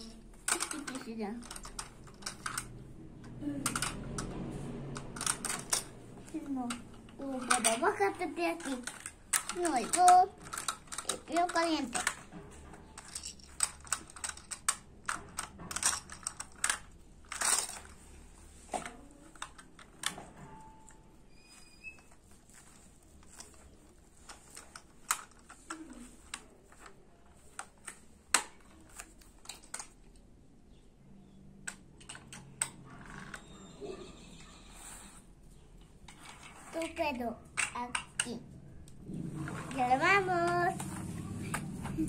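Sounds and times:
toy cars clicking and clacking: 0.0s - 18.1s, 18.8s - 20.2s, 22.4s - 30.2s.

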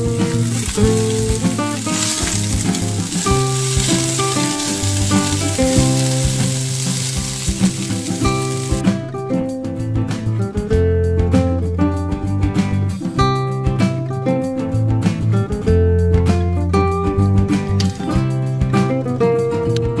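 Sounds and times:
vegetables sizzling in oil: 0.0s - 8.8s
background music: 0.0s - 20.0s
spatula stirring: 0.2s - 8.8s.

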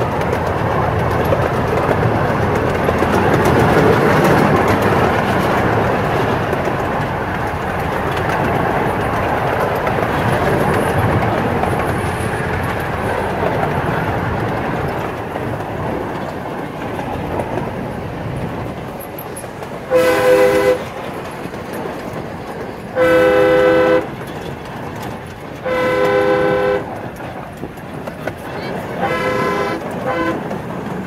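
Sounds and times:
train rolling on tracks: 0.0s - 31.0s
miniature locomotive horn blasts: 19.9s - 20.9s, 23.0s - 24.2s, 25.6s - 27.0s, 29.0s - 30.5s.

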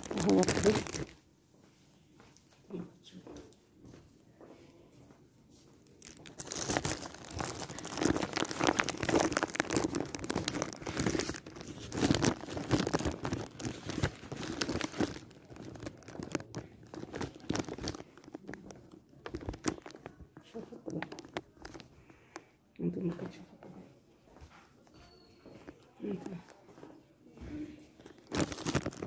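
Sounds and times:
small crackles: 0.0s - 1.2s, 5.8s - 22.5s, 27.6s - 29.0s
clothing rustling on microphone: 5.0s - 22.1s, 23.5s - 29.0s.

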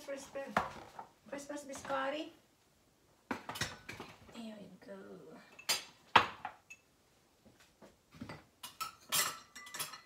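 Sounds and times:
items knocked on kitchen counter: 0.5s - 1.1s, 3.3s - 4.3s, 6.1s - 6.6s.

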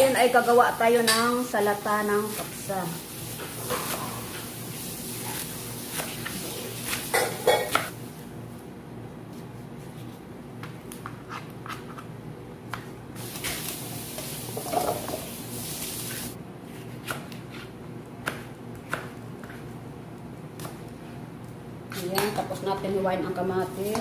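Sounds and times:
knife chopping on cutting board: 17.0s - 19.7s.

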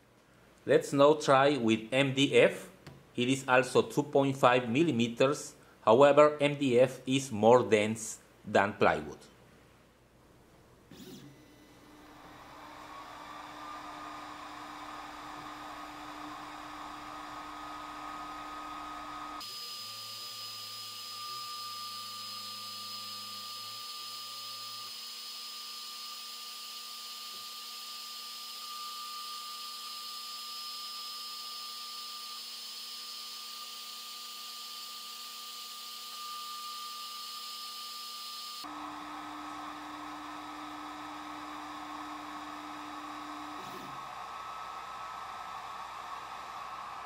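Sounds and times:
thin machine whine: 10.9s - 47.0s.

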